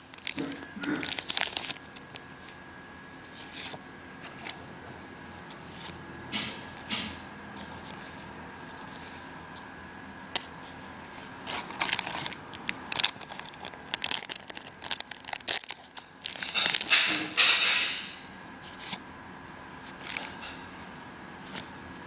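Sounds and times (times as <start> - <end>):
foil pack tearing and crinkling: 0.0 - 2.6, 11.4 - 17.5.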